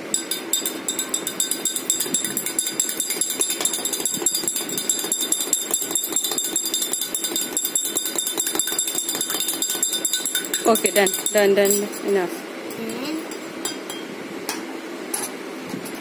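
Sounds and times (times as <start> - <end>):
spoon clinking against glass: 0.1 - 12.0.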